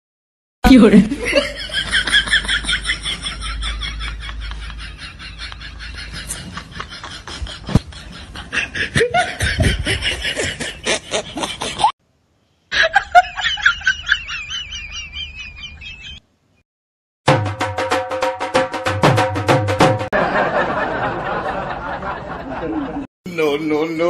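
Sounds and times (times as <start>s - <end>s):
laughter in quick pulses: 1.2s - 11.9s.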